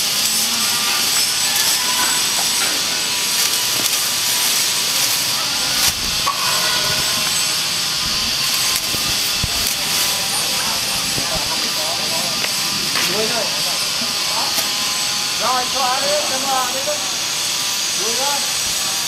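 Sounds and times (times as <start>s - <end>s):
hand rasping on plastic sheet: 8.0s - 11.7s.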